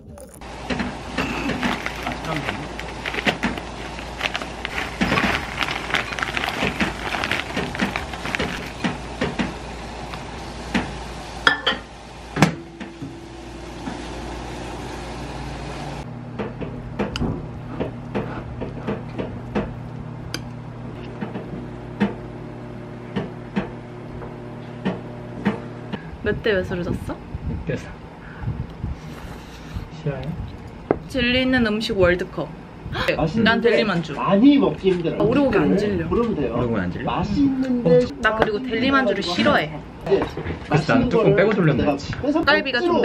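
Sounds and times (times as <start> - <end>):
microwave oven humming: 0.0 - 43.0
plastic pouch crinkling: 1.4 - 8.8.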